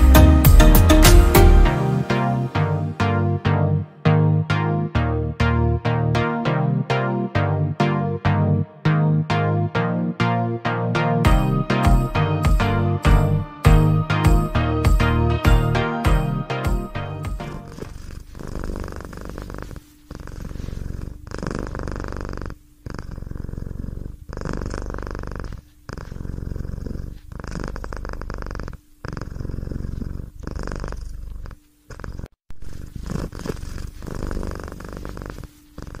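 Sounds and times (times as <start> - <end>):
cat purring: 17.4 - 36.0.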